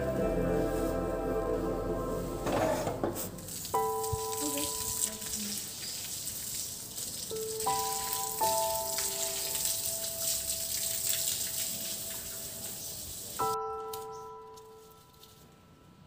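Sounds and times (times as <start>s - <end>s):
soft background music: 0.0s - 5.4s, 7.3s - 12.3s, 13.4s - 16.0s
hose water spattering on stone tiles: 3.1s - 15.4s.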